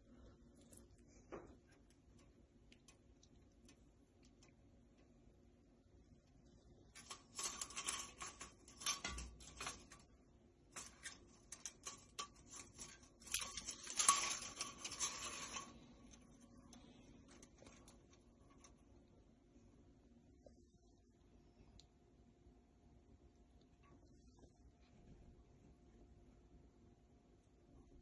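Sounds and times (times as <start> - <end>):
window blind slats rattling: 6.9 - 18.9.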